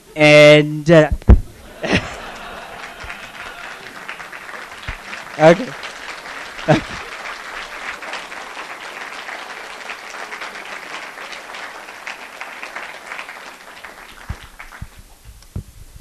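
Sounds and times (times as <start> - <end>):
dull thumps: 1.1 - 1.6
audience applauding: 1.5 - 15.2.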